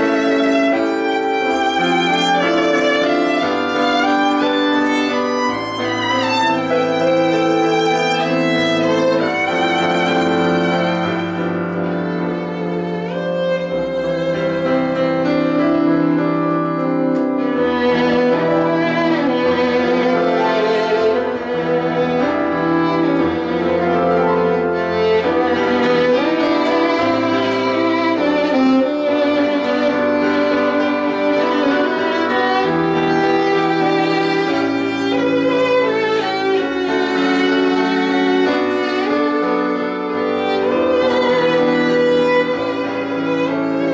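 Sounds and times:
solo violin melody: 0.0 - 43.9.

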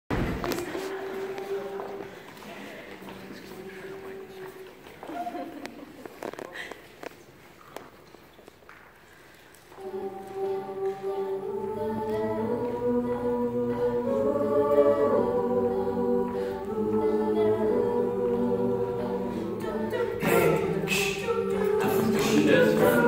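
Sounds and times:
a cappella group singing: 0.4 - 4.8, 9.7 - 23.0.

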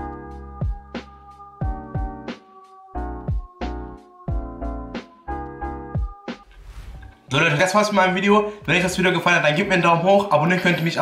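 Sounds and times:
music with deep kick drums: 0.0 - 2.3, 3.1 - 5.0, 5.8 - 6.4.

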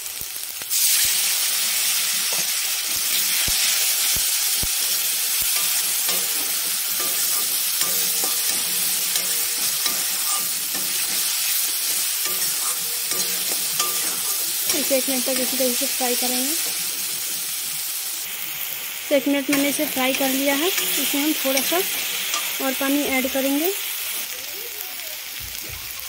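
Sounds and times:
masala sizzling in hot oil: 0.0 - 26.0
metal spatula scraping: 4.8 - 17.8, 19.5 - 23.4.

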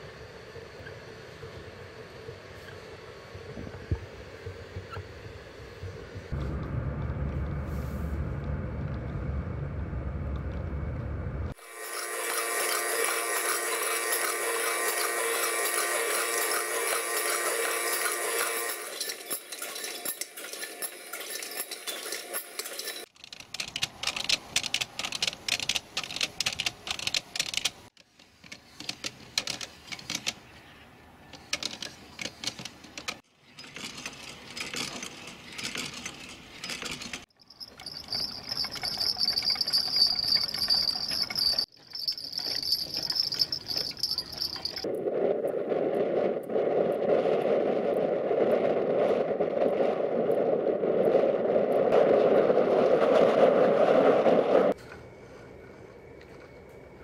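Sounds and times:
mechanisms clicking and clattering: 10.3 - 45.6
steady rushing noise: 44.0 - 54.8.

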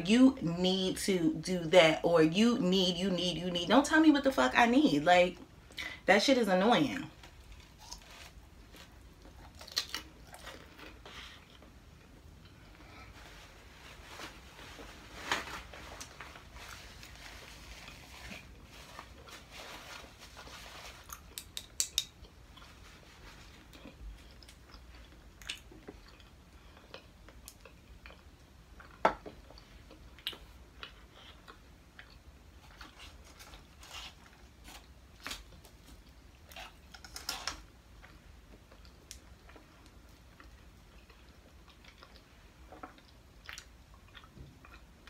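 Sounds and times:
chewing: 7.3 - 12.8, 20.6 - 45.0
paper napkin rustling: 13.1 - 21.2.

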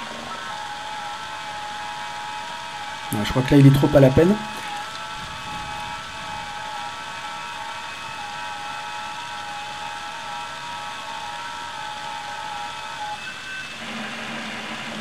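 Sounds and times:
radio band hiss: 0.0 - 15.0.

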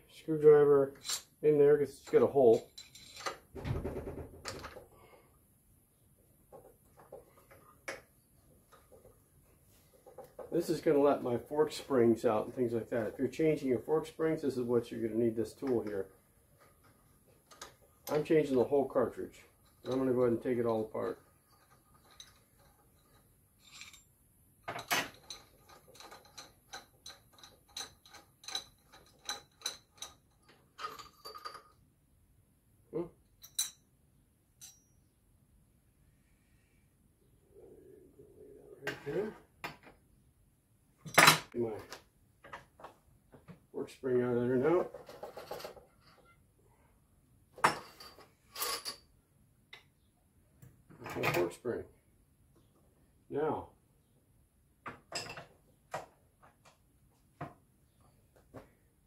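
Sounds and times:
metal parts rattling: 2.0 - 3.4, 19.6 - 24.1, 24.7 - 31.8
metal clinks: 21.4 - 24.1, 24.8 - 31.8, 33.4 - 33.9, 34.6 - 35.1
metallic clink: 21.5 - 24.1, 33.4 - 33.9, 34.6 - 35.1.

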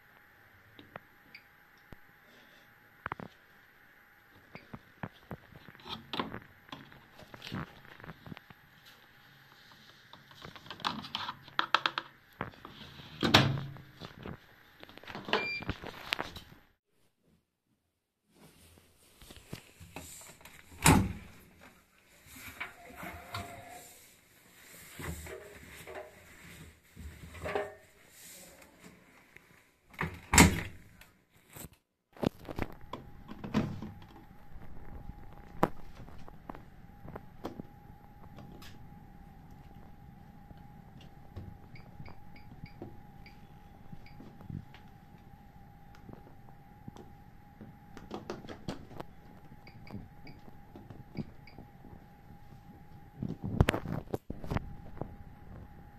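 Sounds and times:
fabric rustling: 18.3 - 20.7.

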